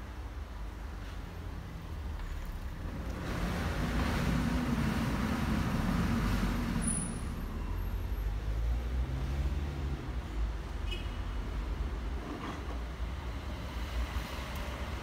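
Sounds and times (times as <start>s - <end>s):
vehicle engine droning: 2.2s - 10.1s.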